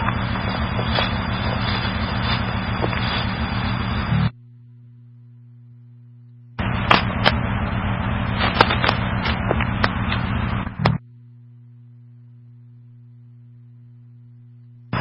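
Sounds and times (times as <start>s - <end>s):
radio static: 0.0s - 4.3s, 6.6s - 11.0s
faint steady hum: 0.0s - 15.0s
radio crackling pops: 6.3s - 7.5s, 8.3s - 11.0s.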